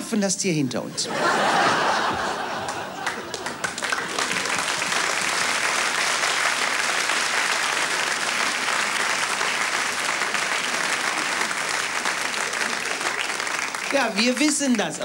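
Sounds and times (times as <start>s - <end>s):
audience applauding: 1.3s - 15.0s.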